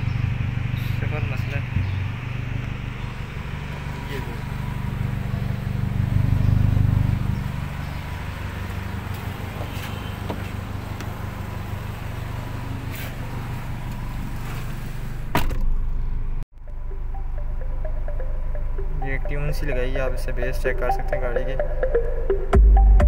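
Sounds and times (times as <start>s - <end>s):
car engine idling: 0.0s - 22.4s
car door shutting: 8.6s - 11.5s, 12.6s - 16.0s.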